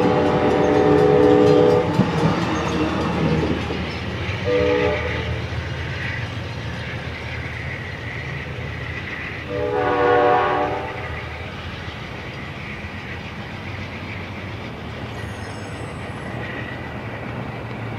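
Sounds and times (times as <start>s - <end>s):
train horn blast: 0.0s - 2.1s, 4.4s - 5.4s, 9.5s - 11.1s
diesel locomotive engine rumbling: 0.0s - 17.9s.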